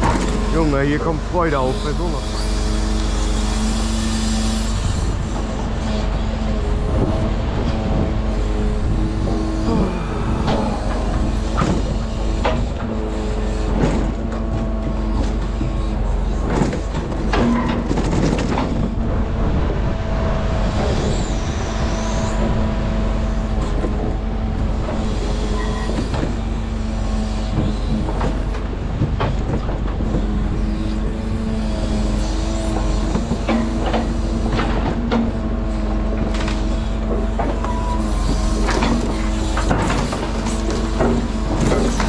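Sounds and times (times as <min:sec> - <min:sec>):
truck engine running: 0:00.0 - 0:42.0
knocks and clatters: 0:10.4 - 0:12.9, 0:13.7 - 0:19.0, 0:27.5 - 0:30.4, 0:32.7 - 0:35.4, 0:36.2 - 0:42.0.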